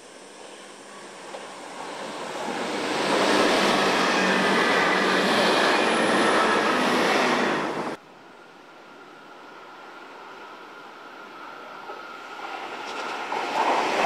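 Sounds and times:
train running on rails: 0.0s - 8.0s, 8.7s - 14.0s.

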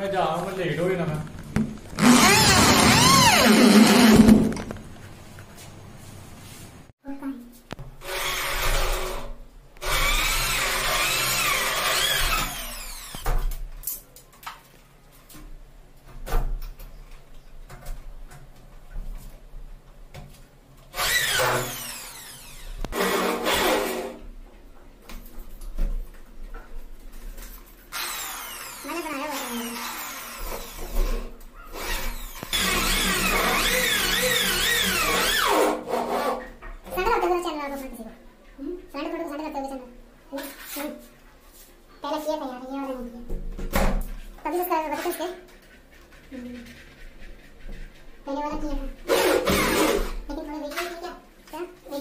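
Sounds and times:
electric drill whining: 2.0s - 4.3s, 9.8s - 13.2s, 21.0s - 23.1s, 27.9s - 31.0s, 31.7s - 35.5s.

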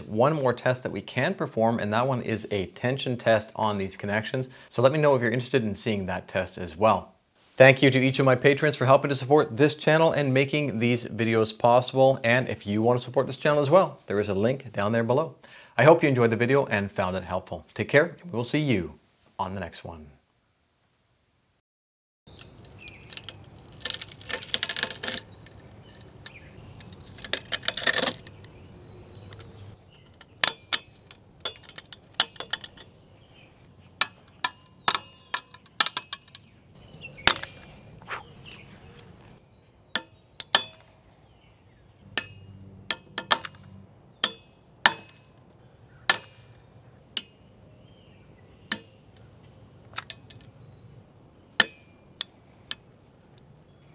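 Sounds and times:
dense crackling: 22.3s - 28.5s
material cracking and snapping: 22.3s - 28.5s.

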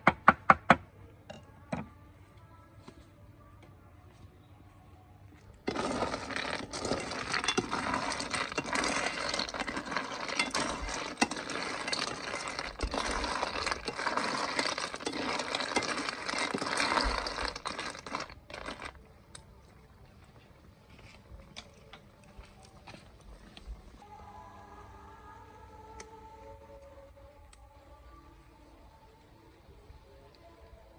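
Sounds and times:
sizzling: 5.6s - 19.0s
snail shells clinking in a wok: 5.7s - 18.9s.

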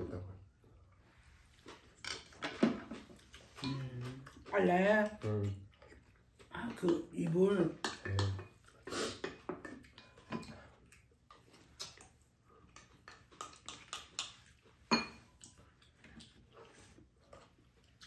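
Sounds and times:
spoons clinking against bowls: 6.7s - 8.6s, 9.2s - 10.6s, 14.9s - 15.3s.

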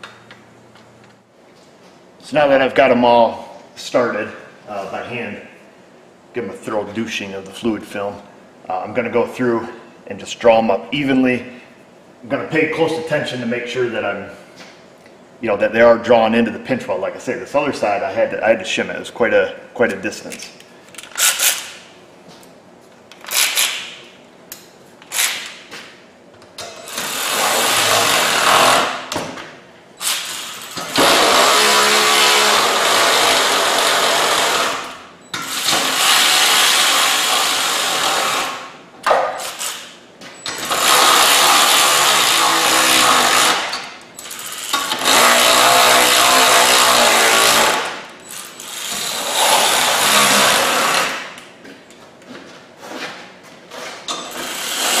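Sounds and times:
power wrench running: 26.8s - 29.1s, 30.0s - 38.7s, 39.4s - 51.2s, 54.2s - 55.0s.

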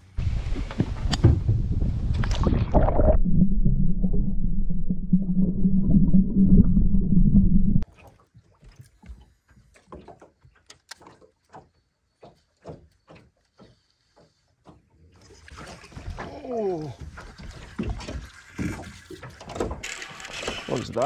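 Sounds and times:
brief falling whine: 2.7s - 7.8s
water lapping against boat hull: 7.8s - 21.0s.

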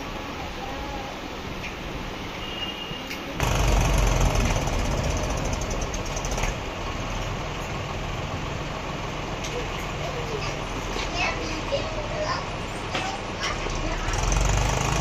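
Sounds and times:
tractor diesel engine revving: 3.4s - 9.4s, 13.5s - 15.0s.

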